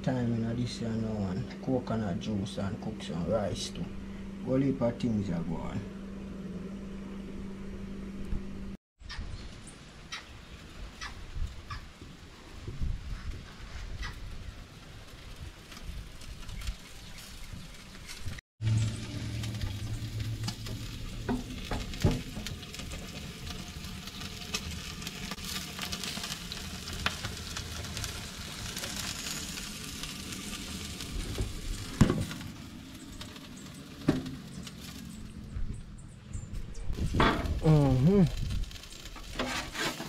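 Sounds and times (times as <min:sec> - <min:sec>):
chicken sizzling on a grill: 0:10.2 - 0:35.4, 0:37.0 - 0:40.0.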